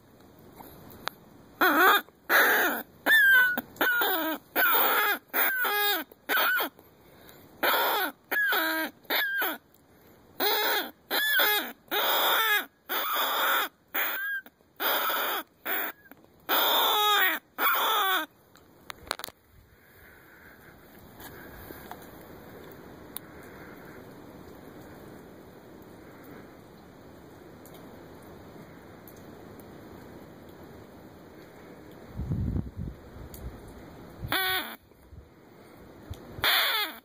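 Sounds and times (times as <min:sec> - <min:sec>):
predator call wavering cries: 0:01.6 - 0:06.7, 0:07.6 - 0:09.6, 0:10.4 - 0:18.3, 0:34.3 - 0:34.8, 0:36.4 - 0:37.0.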